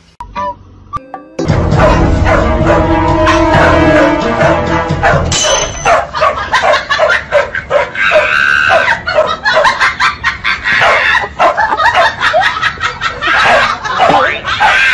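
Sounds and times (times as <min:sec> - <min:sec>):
background music: 0:00.2 - 0:06.1
dogs barking and yipping: 0:01.7 - 0:04.2, 0:04.8 - 0:14.9.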